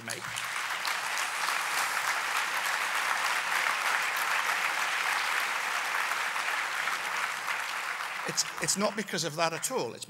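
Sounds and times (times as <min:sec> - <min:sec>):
audience applauding: 0:00.0 - 0:10.0.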